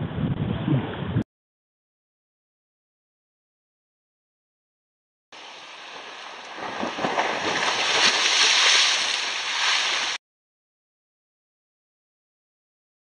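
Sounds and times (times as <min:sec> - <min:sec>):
wind rushing over microphone: 0:00.0 - 0:01.2
shallow water washing: 0:05.4 - 0:10.2.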